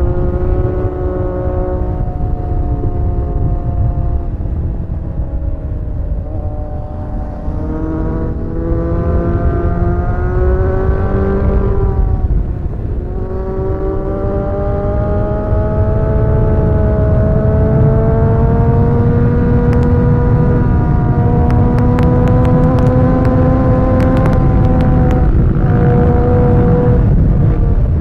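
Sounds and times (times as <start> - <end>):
motorcycle engine at speed: 0.0 - 28.0
wind rumble on microphone: 0.0 - 28.0.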